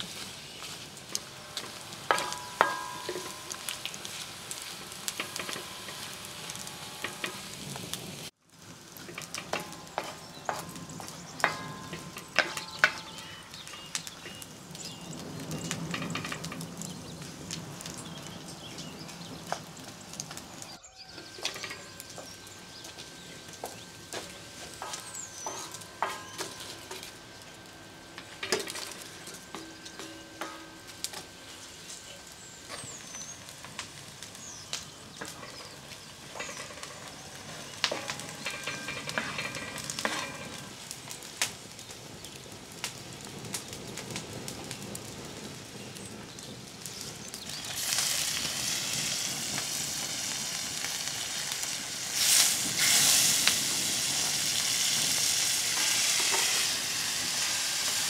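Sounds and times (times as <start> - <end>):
wooden spoon scraping a pan: 0.0 - 8.3, 9.0 - 14.4, 21.1 - 41.2, 54.5 - 58.0
onions sizzling in a pan: 0.0 - 58.0.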